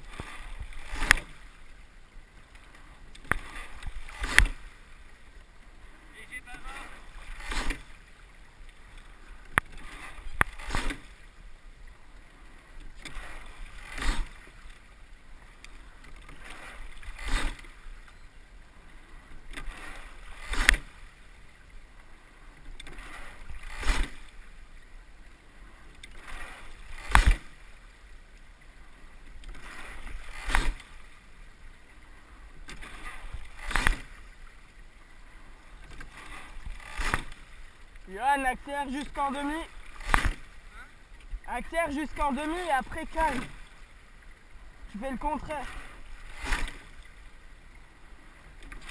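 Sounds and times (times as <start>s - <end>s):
swish of water: 0.0s - 1.7s, 2.6s - 5.2s, 6.5s - 11.4s, 13.0s - 15.0s, 16.1s - 18.0s, 19.5s - 21.6s, 22.8s - 24.6s, 26.1s - 27.9s, 29.4s - 38.1s, 39.3s - 41.5s, 44.7s - 48.9s
oars clacking in oarlocks: 0.0s - 48.9s.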